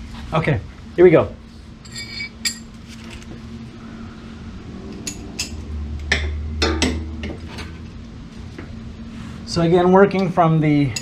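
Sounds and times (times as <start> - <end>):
ratchet and socket clinking on metal: 1.8 - 3.2.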